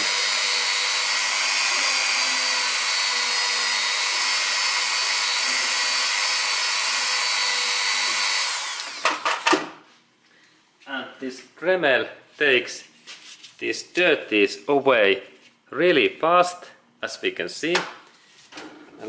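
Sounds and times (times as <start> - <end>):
rotary tool whining: 0.0 - 9.5.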